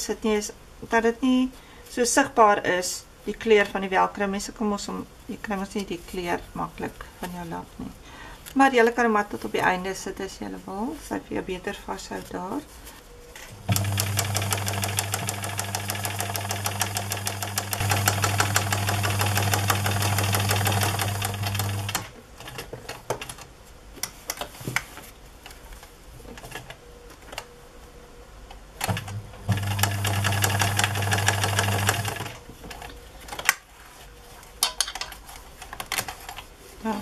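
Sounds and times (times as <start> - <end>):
sewing machine stitching: 13.7 - 22.1, 28.9 - 32.4.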